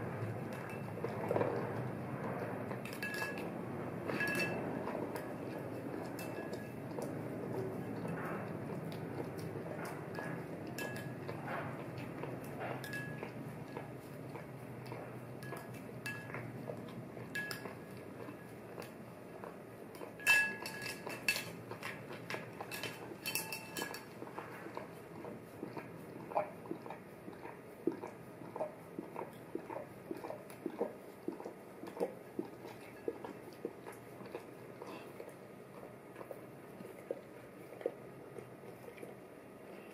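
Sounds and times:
spoon clinking against bowl: 2.8s - 7.1s, 10.1s - 11.4s, 12.8s - 13.8s, 15.4s - 16.5s, 17.3s - 18.0s, 20.2s - 24.2s.

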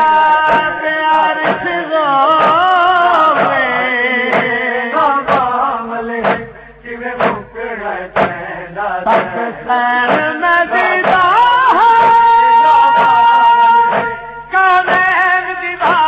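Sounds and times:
clap-like beat: 0.0s - 5.6s, 6.2s - 6.6s, 7.2s - 8.5s, 9.1s - 16.0s
male voices chanting: 0.0s - 16.0s.

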